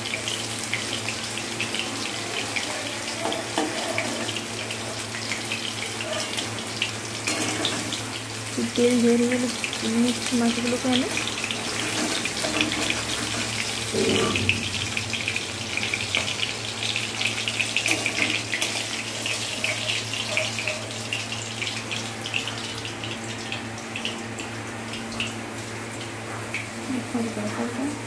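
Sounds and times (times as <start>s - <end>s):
hot oil sizzling and crackling: 0.0s - 28.0s
metal spatula scraping pan: 11.6s - 15.9s.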